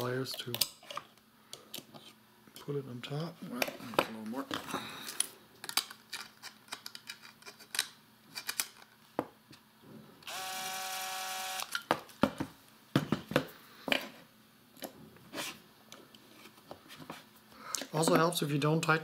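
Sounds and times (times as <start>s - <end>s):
small parts clicking and knocking: 5.1s - 9.0s
cordless drill motor whine: 10.2s - 11.8s.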